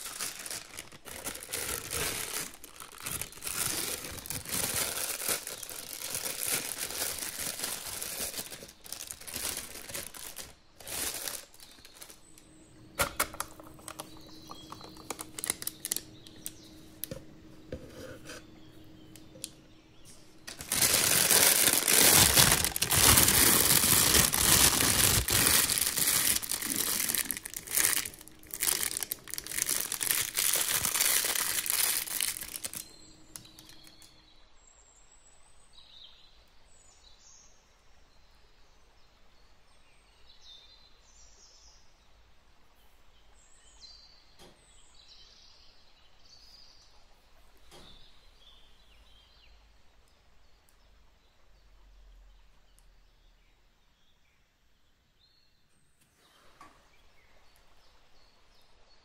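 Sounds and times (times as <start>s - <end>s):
plastic piping bag crinkling: 0.0s - 17.6s, 20.3s - 34.1s.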